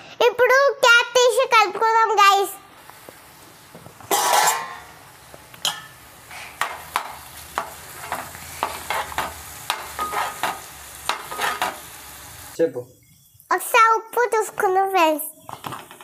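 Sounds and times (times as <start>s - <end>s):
curry sizzling softly: 2.7s - 14.8s
metal spoon scraping pan: 4.1s - 4.9s, 5.6s - 11.8s.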